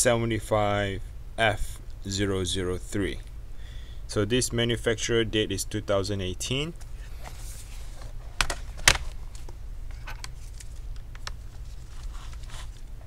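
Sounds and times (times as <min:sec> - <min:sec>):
plastic laptop case clicks: 0:08.4 - 0:09.2.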